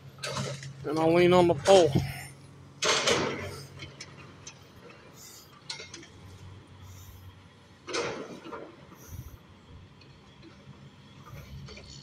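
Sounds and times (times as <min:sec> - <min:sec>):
excavator engine hum: 0:00.0 - 0:12.0
loud debris clatter: 0:02.8 - 0:04.2.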